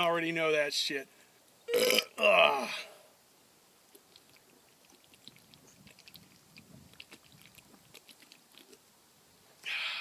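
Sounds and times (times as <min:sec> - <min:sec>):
man gulping and swallowing: 0:01.7 - 0:02.6, 0:04.0 - 0:08.8.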